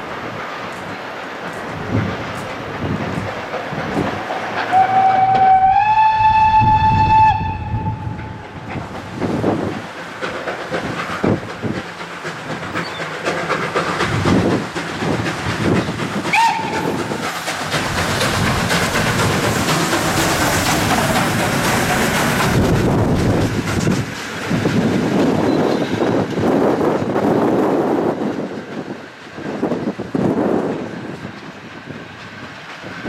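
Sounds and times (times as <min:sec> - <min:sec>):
steam locomotive chuffing: 0:00.0 - 0:33.0
train running gear noise: 0:00.0 - 0:33.0
steam whistle: 0:04.7 - 0:08.4, 0:16.3 - 0:17.0.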